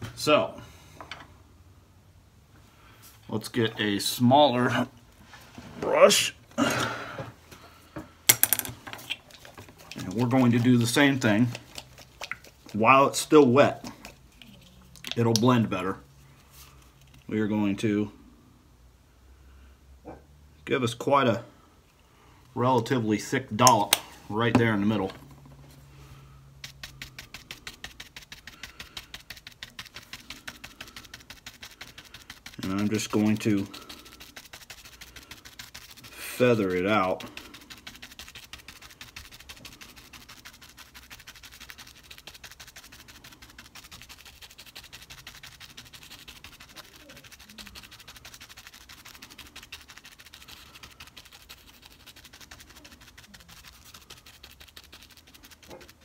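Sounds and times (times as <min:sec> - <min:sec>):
paintbrush dabbing paint: 0:09.0 - 0:17.8, 0:22.8 - 0:56.0.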